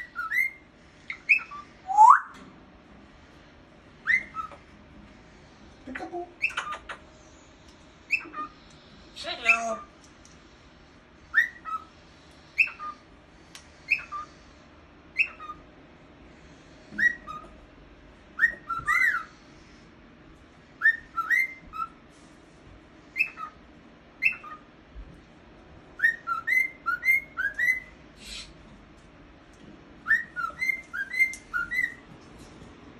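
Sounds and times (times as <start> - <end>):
cockatiel whistling: 0.0 - 2.4, 4.0 - 4.6, 8.1 - 8.6, 11.3 - 11.9, 12.6 - 13.0, 13.9 - 14.3, 15.1 - 15.6, 17.0 - 17.6, 18.4 - 19.3, 20.8 - 22.0, 23.1 - 23.6, 24.2 - 24.6, 26.0 - 28.5, 30.0 - 32.0.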